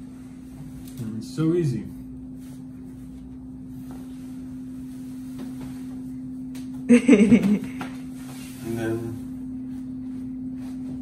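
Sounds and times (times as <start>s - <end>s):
steady low hum: 0.0s - 11.0s.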